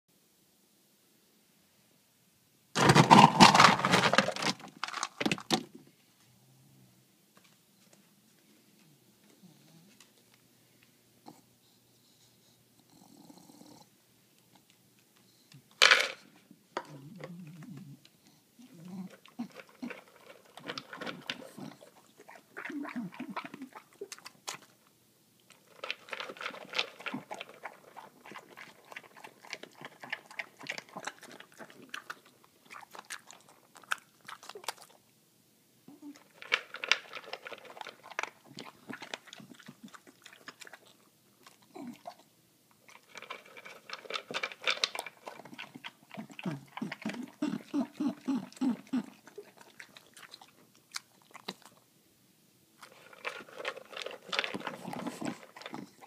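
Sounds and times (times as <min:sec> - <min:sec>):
dog crunching dry kibble: 0:02.8 - 0:05.7, 0:15.8 - 0:16.2, 0:19.0 - 0:35.0, 0:36.0 - 0:51.9, 0:52.8 - 0:56.0.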